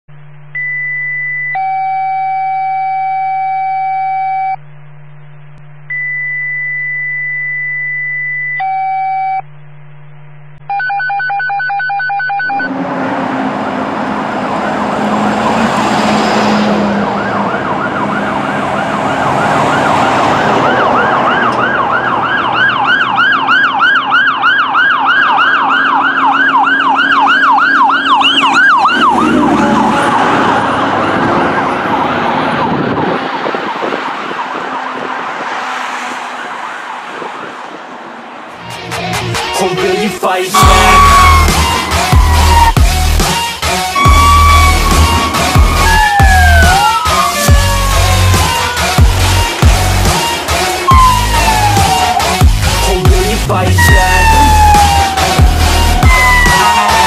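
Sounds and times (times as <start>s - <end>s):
engine and road noise: 0.1s - 3.5s, 4.6s - 8.7s, 12.2s - 57.0s
fire engine siren wailing: 1.5s - 4.4s, 10.7s - 38.6s, 40.5s - 57.0s
low hum: 3.8s - 10.7s
steady electronic tones: 40.6s - 57.0s.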